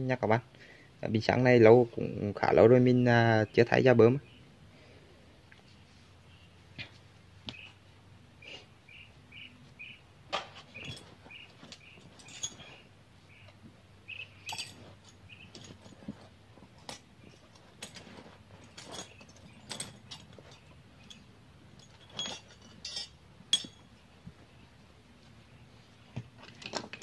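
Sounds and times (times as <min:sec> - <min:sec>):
bird chirping: 0:03.4 - 0:04.6, 0:05.6 - 0:06.7, 0:07.4 - 0:15.7
metal tools clinking: 0:10.3 - 0:24.1, 0:26.4 - 0:27.0.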